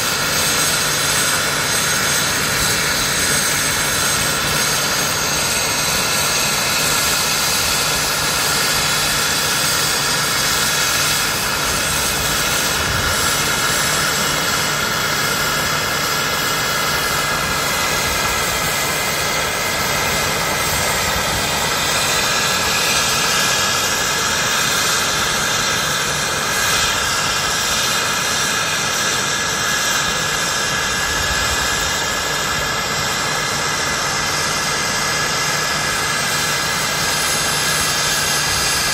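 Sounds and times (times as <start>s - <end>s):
model helicopter engine whine: 0.0s - 38.9s.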